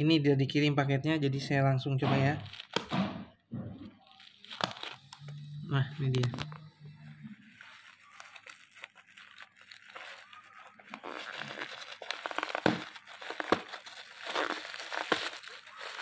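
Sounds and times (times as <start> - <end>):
plastic bag crinkling and tearing: 2.4 - 3.0, 3.9 - 5.4, 7.3 - 16.0.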